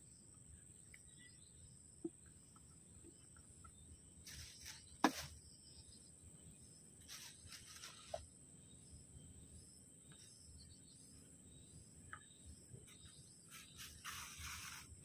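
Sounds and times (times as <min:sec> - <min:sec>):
plastic bag rustling: 0:07.1 - 0:08.2.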